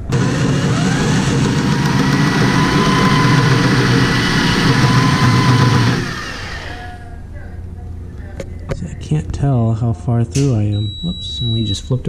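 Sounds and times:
electric drill whining: 0.0 - 7.0.

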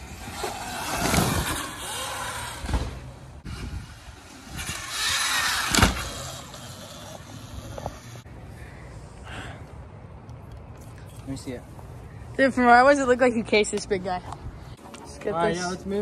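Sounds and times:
rush of bike approaching: 0.0 - 8.2
bike landing thump: 2.6 - 3.3, 5.6 - 6.1.

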